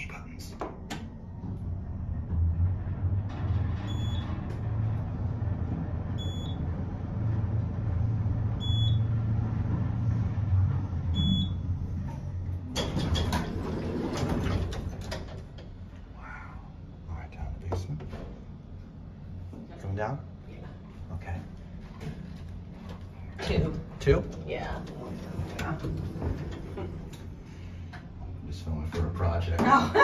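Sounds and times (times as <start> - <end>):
elevator low rumble: 0.0 - 30.0
elevator doors sliding open: 0.9 - 15.9, 22.0 - 27.9.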